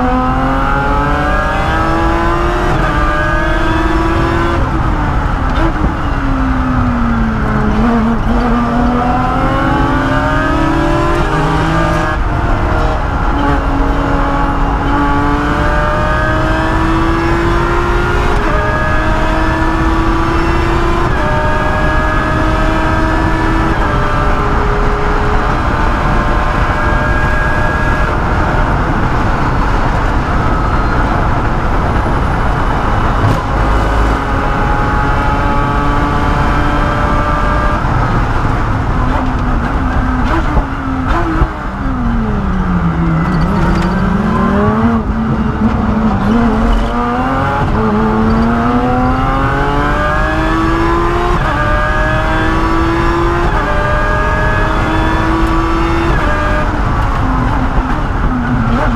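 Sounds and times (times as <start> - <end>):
race car engine accelerating: 0.0 - 58.9.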